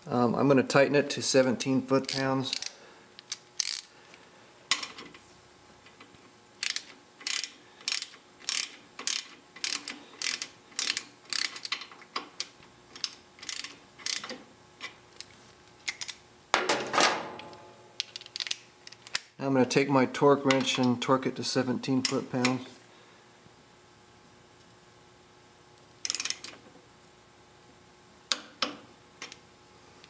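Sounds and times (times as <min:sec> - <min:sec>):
socket ratchet clicking: 0:01.6 - 0:03.9, 0:06.6 - 0:14.4, 0:26.0 - 0:26.5.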